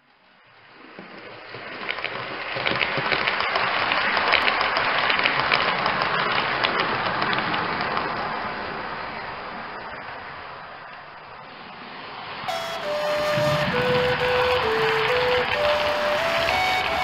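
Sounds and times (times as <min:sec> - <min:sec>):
model train clattering on track: 0:02.6 - 0:08.2.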